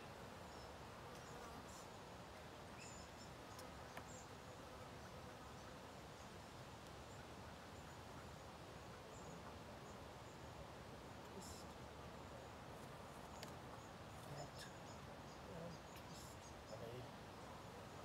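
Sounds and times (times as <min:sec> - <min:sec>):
faint outdoor hiss: 0:00.0 - 0:18.0.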